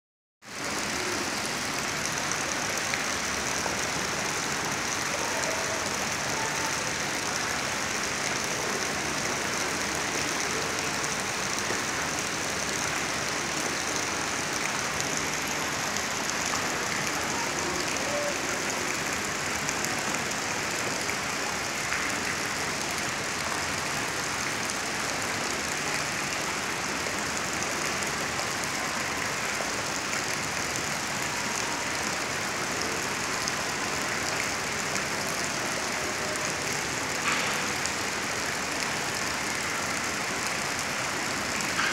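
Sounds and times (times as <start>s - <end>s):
water pouring from pipe into pool: 0.4s - 41.9s.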